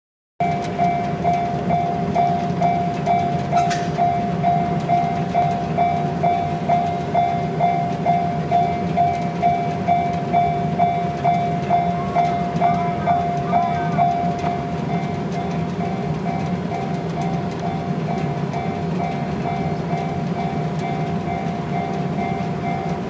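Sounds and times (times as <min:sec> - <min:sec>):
level crossing alarm dinging: 0:00.4 - 0:23.0.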